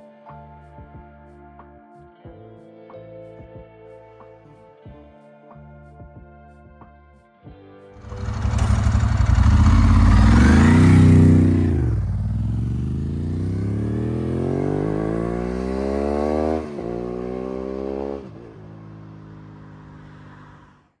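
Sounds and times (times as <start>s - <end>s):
motorcycle passing and accelerating: 8.0s - 20.9s.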